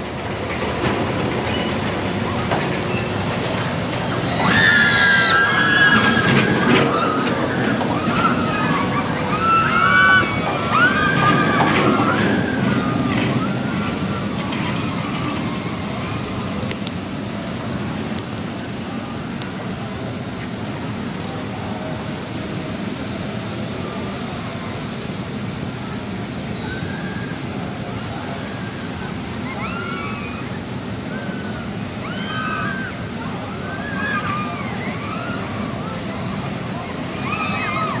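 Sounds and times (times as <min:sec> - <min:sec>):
roller coaster rumbling on track: 0:00.0 - 0:38.0
riders screaming: 0:04.2 - 0:15.8.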